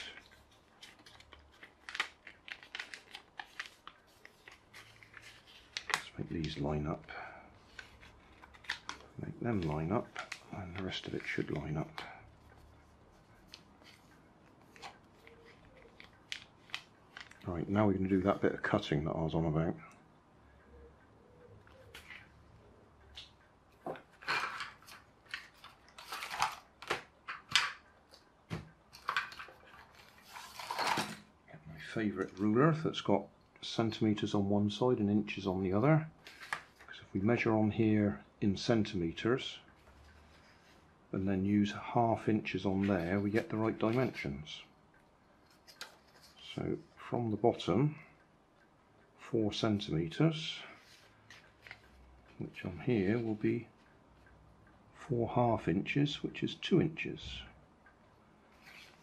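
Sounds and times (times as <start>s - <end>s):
paper folding and creasing: 0.0s - 18.8s, 23.2s - 28.2s, 28.9s - 31.3s, 36.2s - 37.0s, 42.5s - 44.3s, 45.5s - 47.0s, 50.7s - 53.2s, 58.5s - 59.0s.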